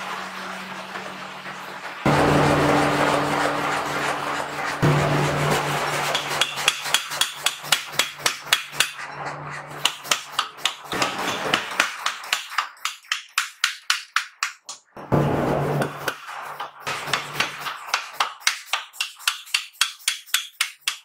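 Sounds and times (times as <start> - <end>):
machine drive humming: 0.0 - 6.7
power hammer pounding steel: 2.0 - 14.1, 15.0 - 21.0.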